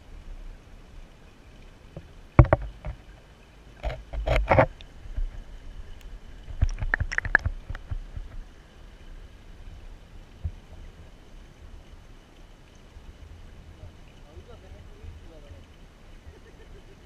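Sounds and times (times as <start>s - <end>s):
sharp clicks and knocks: 2.4s - 3.0s, 6.5s - 8.4s.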